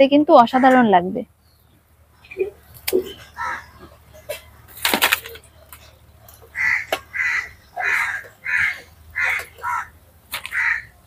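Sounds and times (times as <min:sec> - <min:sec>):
crow cawing: 0:03.1 - 0:04.0, 0:06.4 - 0:11.0.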